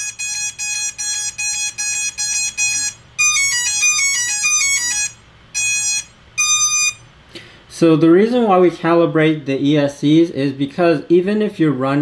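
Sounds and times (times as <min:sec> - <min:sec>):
electronic motor beeps: 0:00.0 - 0:07.1
stepped beeping notes: 0:00.0 - 0:07.1.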